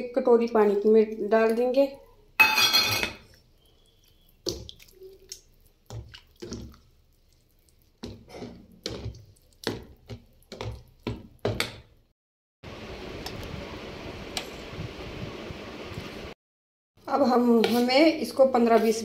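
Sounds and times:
spoon stirring batter in bowl: 3.2s - 12.0s, 17.2s - 19.0s.

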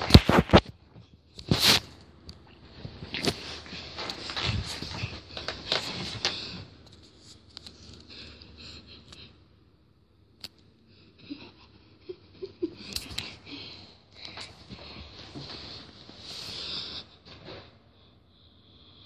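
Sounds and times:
fabric rustling: 2.6s - 7.8s.

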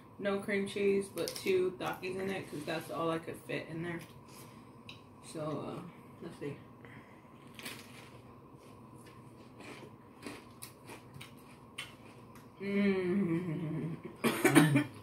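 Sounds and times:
crunching bites and chewing: 7.5s - 8.3s, 9.0s - 12.5s
person humming: 12.6s - 14.2s.

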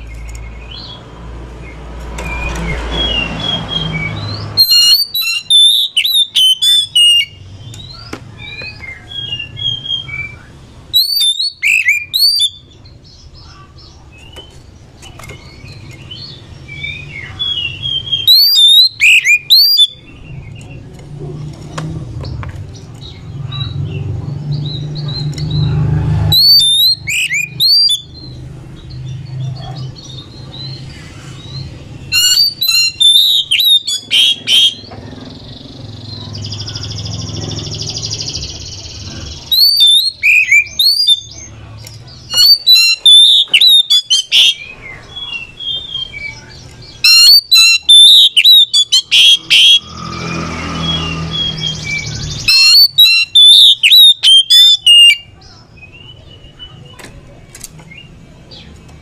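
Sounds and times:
bird singing whistled notes: 2.2s - 13.2s, 15.4s - 20.7s, 26.3s - 29.2s, 30.0s - 41.5s, 42.2s - 57.0s
harsh buzzy rasping bird call: 4.5s - 7.4s, 10.9s - 12.6s, 32.1s - 34.9s, 42.4s - 44.7s, 47.0s - 51.8s, 52.4s - 55.2s.

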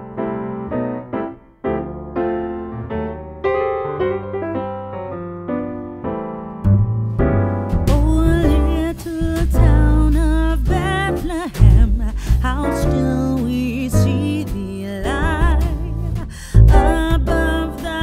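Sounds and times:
electric piano chords: 0.0s - 18.0s
bass: 1.7s - 18.0s
drums: 7.7s - 18.0s
person singing: 7.9s - 18.0s.

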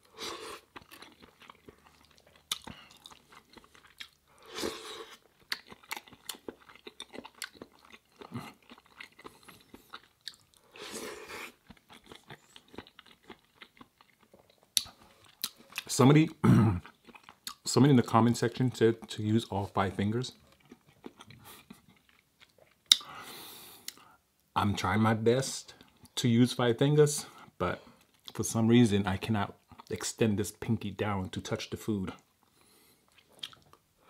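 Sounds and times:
wet chewing mouth sounds: 0.2s - 15.9s, 16.8s - 17.6s.

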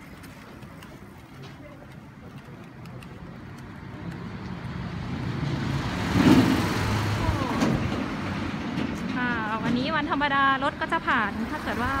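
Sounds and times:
truck engine approaching: 2.8s - 12.0s.

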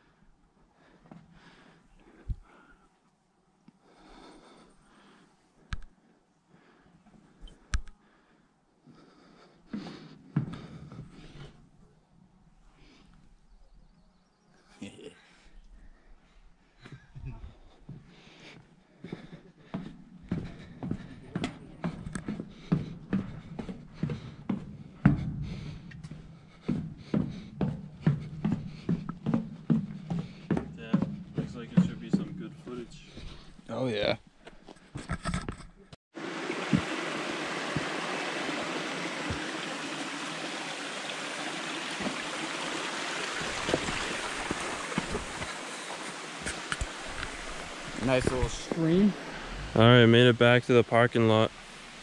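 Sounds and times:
footsteps on wooden stairs: 9.7s - 11.3s, 19.0s - 33.7s, 36.4s - 49.7s
soft low thumps: 19.8s - 33.4s
stream babbling: 36.2s - 52.0s.

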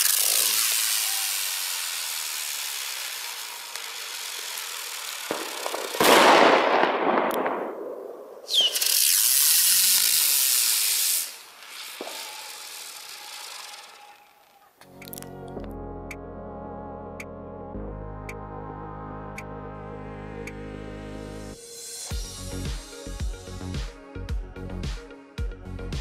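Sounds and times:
firework whistle: 0.0s - 14.8s
fireworks hissing: 0.0s - 14.8s, 21.5s - 23.7s.

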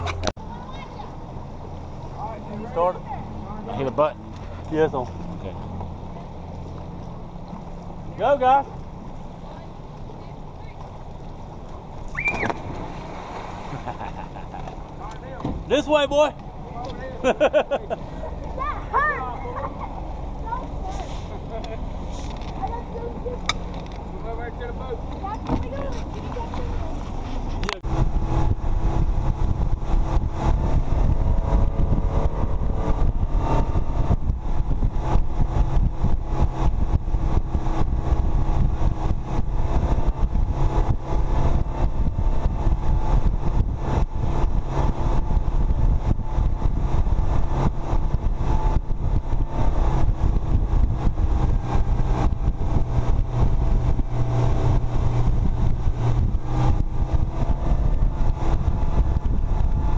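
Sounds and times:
boat wake rushing: 0.0s - 59.9s
outboard motor running: 0.0s - 59.9s
wind buffeting microphone: 25.0s - 59.9s.

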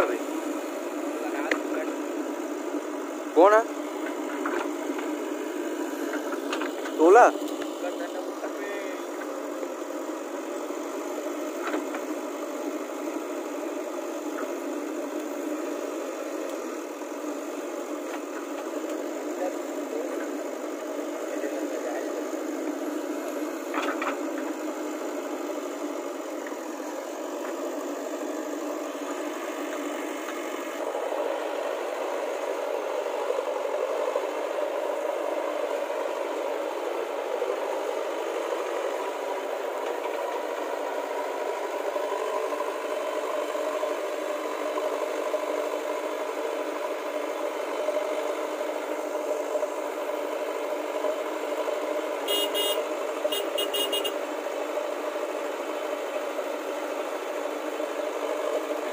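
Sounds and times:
diesel engine running: 0.0s - 58.9s.

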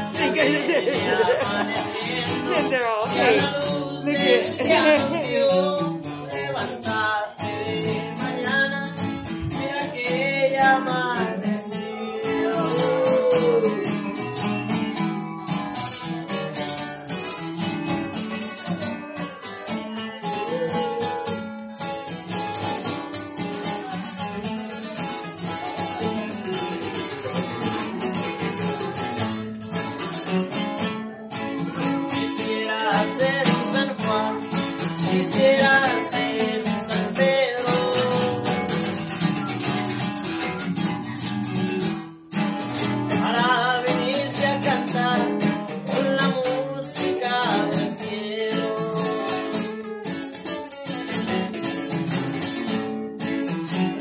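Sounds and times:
young man singing: 0.0s - 14.4s, 19.7s - 21.5s, 31.8s - 39.1s, 43.0s - 50.0s
acoustic guitars strummed: 0.0s - 54.0s.

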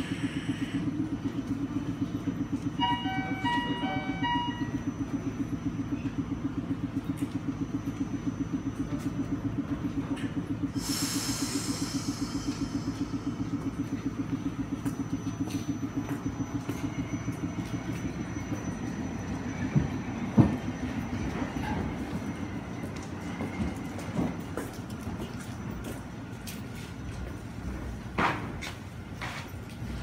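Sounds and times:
tram machinery chugging: 0.0s - 30.0s
air hiss: 10.8s - 12.8s.

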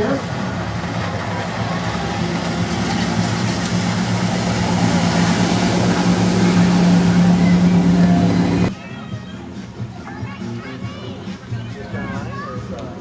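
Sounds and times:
engine running: 0.0s - 8.7s.

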